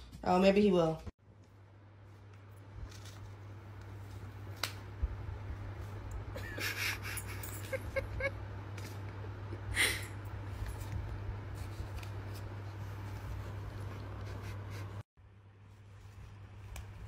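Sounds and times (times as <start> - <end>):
steady low hum: 1.2 - 17.0
cardboard rustling and crinkling: 2.7 - 4.5.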